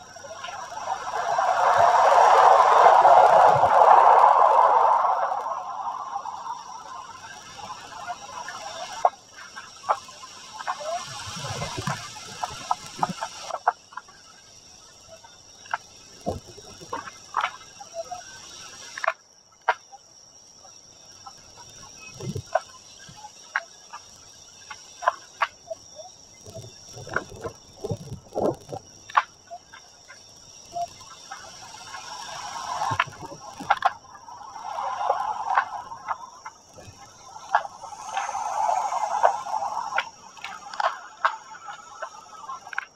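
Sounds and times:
wind buffeting microphone: 0.0 - 8.0
steady high whine: 0.0 - 13.5, 29.6 - 42.9.

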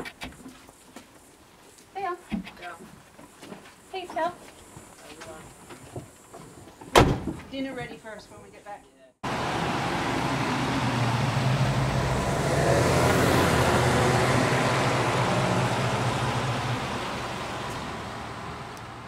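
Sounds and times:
car engine driving past: 9.2 - 19.0
tyres hissing on wet road: 9.2 - 19.0.

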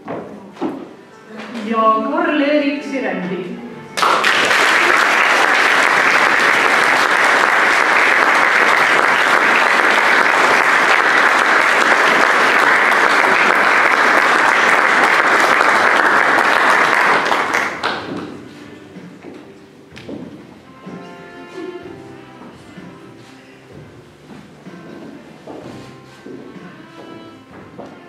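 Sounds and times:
audience applauding: 4.0 - 18.3.

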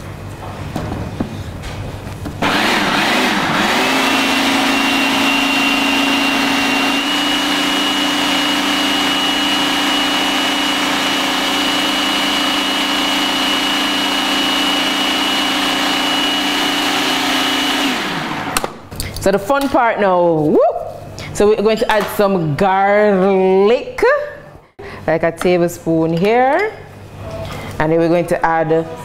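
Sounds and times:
food processor motor humming: 2.4 - 18.7.

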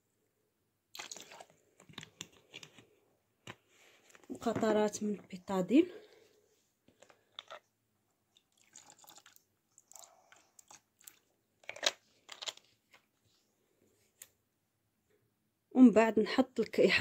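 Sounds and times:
plastic bottle clicks and rustles: 0.9 - 3.6, 11.6 - 13.1
liquid pouring into water: 1.0 - 1.5, 8.4 - 11.3.

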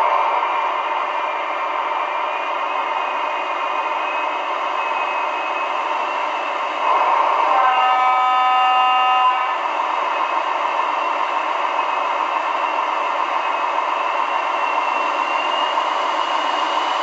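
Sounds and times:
locomotive horn note: 6.9 - 9.6.

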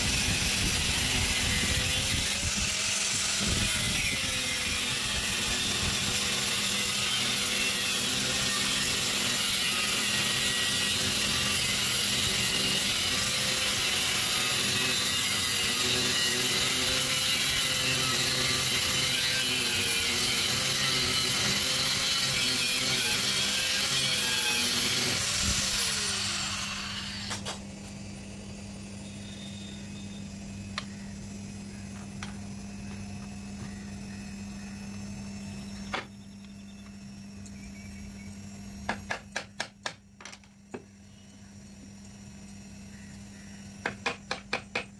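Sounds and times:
angle grinder cutting steel: 0.0 - 27.6.

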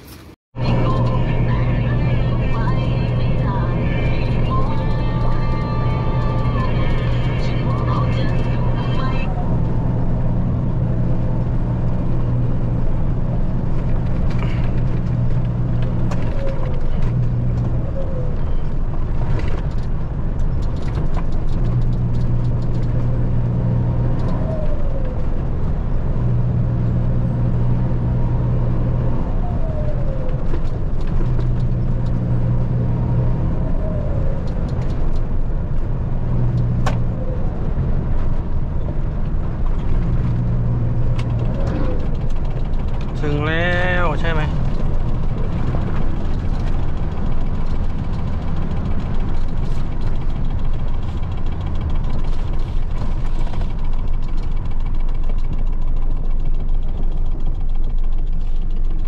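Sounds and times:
truck engine drone from cab: 0.0 - 59.0
faint clicks and rattles: 18.4 - 23.6, 29.7 - 32.3, 34.2 - 35.9, 38.0 - 59.0.

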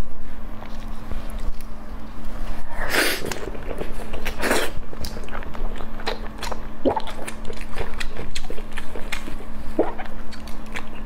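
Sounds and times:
person chewing wetly: 3.3 - 11.0.

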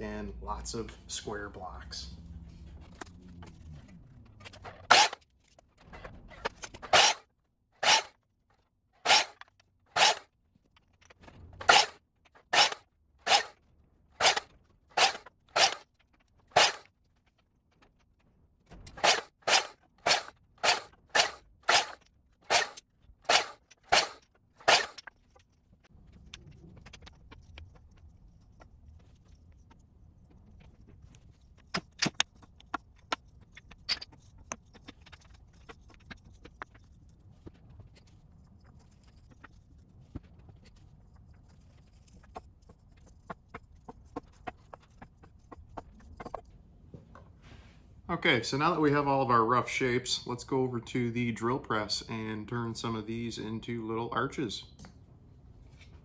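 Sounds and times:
miter saw cutting wood: 6.9 - 7.2, 7.8 - 8.1, 9.0 - 9.4, 10.0 - 10.2, 11.6 - 13.6, 14.2 - 15.8, 16.6 - 16.8, 19.0 - 25.0.

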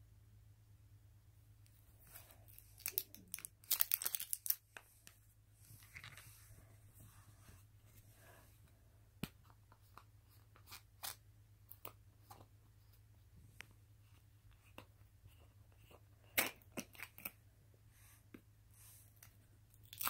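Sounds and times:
soft rustling: 4.6 - 10.6.

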